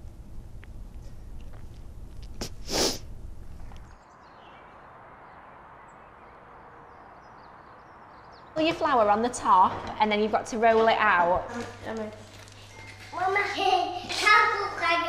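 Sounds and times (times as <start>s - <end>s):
low room hum: 0.0s - 4.0s
faint outdoor hiss: 0.0s - 15.0s
woman sniffing: 2.4s - 3.1s.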